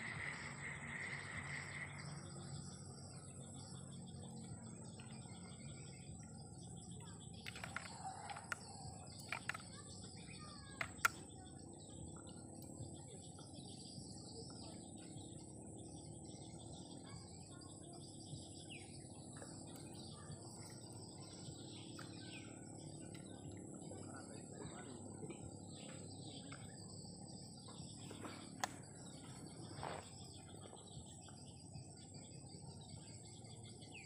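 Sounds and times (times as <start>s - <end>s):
high insect whine: 0.0s - 3.2s
small birds chirping: 0.0s - 34.0s
sharp clicks and taps: 10.7s - 11.2s.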